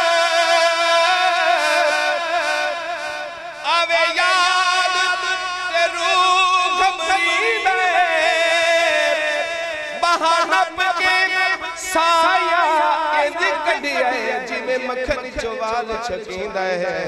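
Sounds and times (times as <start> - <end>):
man singing through a microphone: 0.0 - 17.0.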